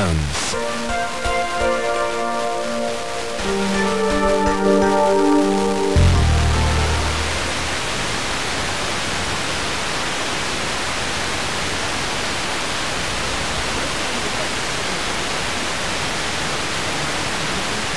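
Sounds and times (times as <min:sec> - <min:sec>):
radio static hiss: 0:00.0 - 0:08.8.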